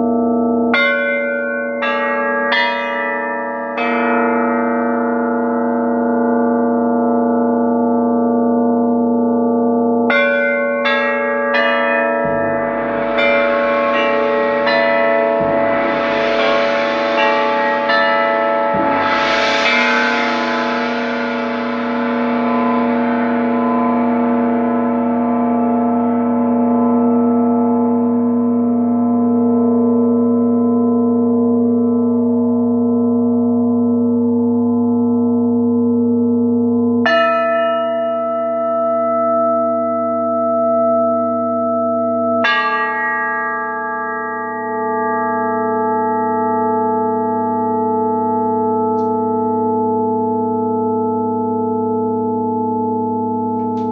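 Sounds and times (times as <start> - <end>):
struck metal percussion ringing: 0.7 - 32.3, 36.8 - 53.9.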